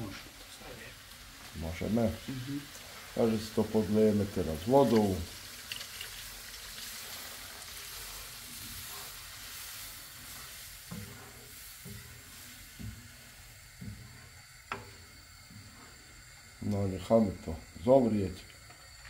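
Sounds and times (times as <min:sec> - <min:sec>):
water sizzling in hot pan: 0:00.0 - 0:19.0
spoon scraping pan: 0:04.8 - 0:16.1.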